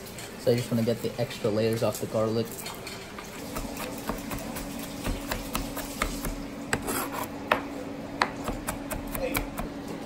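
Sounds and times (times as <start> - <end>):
knife chopping on cutting board: 3.5 - 9.8.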